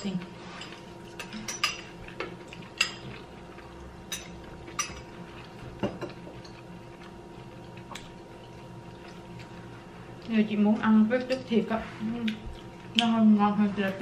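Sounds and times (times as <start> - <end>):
steady low hum: 0.0 - 14.0
spoons clinking on glass bowls: 1.1 - 1.9.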